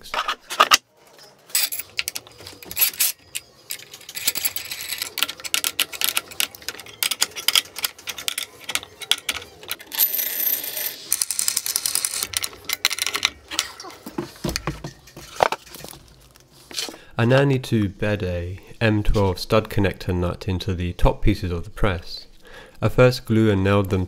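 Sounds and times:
metal clamps clicking and rattling: 0:01.5 - 0:10.1, 0:11.1 - 0:16.0.

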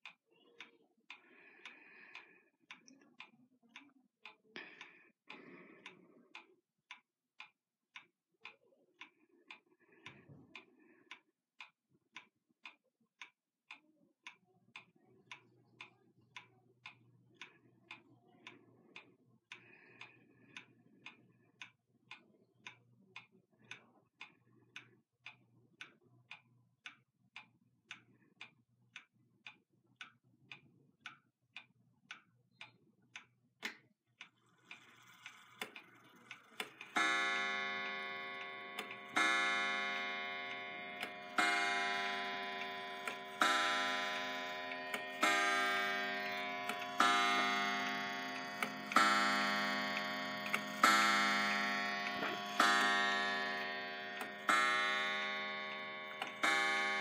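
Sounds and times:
pendulum clock ticking: 0:33.6 - 0:57.0
clock click: 0:34.7 - 0:57.0
clock striking a coil gong: 0:36.5 - 0:57.0.

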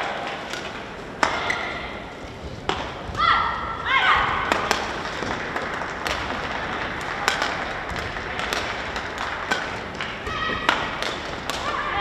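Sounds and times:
spectators clapping: 0:04.8 - 0:10.2.

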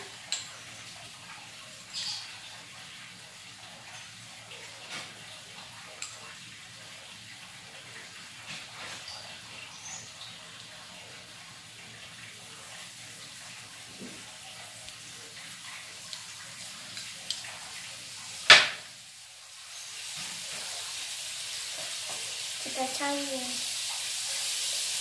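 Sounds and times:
butter hissing in frying pan: 0:11.6 - 0:25.0
sharp knock: 0:18.5 - 0:18.8.

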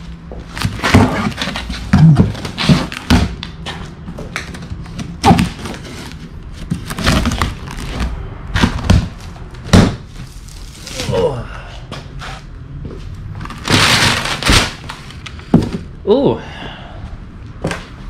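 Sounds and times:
cardboard thumps: 0:00.6 - 0:03.5.

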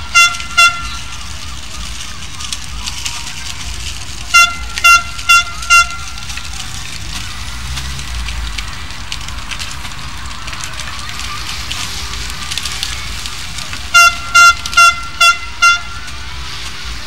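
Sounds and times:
high-pitched horn toots: 0:00.0 - 0:01.2, 0:04.3 - 0:06.3, 0:13.9 - 0:16.2
street background noise: 0:00.0 - 0:17.0.

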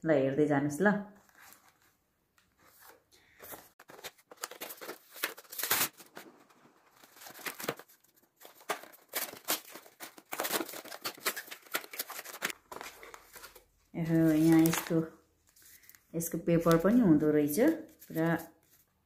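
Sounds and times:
paper packaging rustling: 0:01.2 - 0:16.0.

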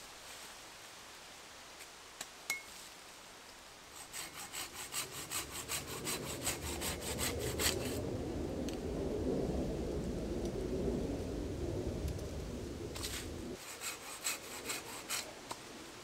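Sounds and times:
hand saw cutting wood: 0:03.9 - 0:08.0, 0:13.0 - 0:15.6
low rumbling noise: 0:05.1 - 0:13.6.

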